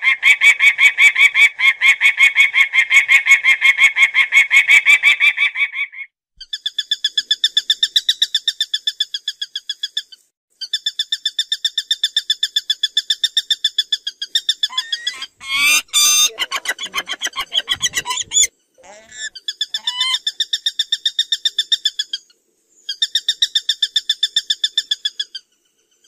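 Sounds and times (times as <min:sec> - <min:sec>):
falcon harsh screams: 0:14.7 - 0:20.2
falcon calling rapid high notes: 0:14.7 - 0:20.3.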